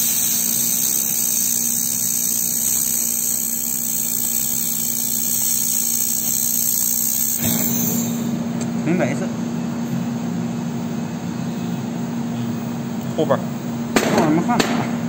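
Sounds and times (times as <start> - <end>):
welding hiss: 0.0 - 8.4
low machine hum: 0.0 - 15.0.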